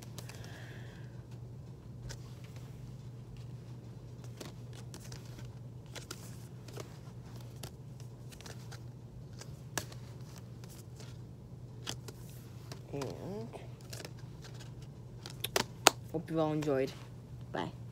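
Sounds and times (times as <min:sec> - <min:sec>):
paper cards rustling: 0:00.0 - 0:00.6, 0:01.3 - 0:16.9
cards tapping: 0:04.2 - 0:11.2, 0:11.8 - 0:16.0.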